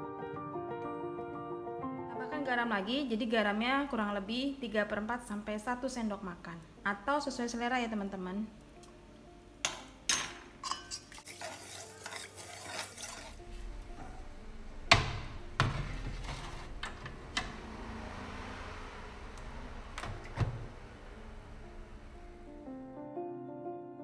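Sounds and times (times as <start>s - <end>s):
metal spoon clinking against pot: 9.6s - 13.4s
loud knock: 14.8s - 16.0s.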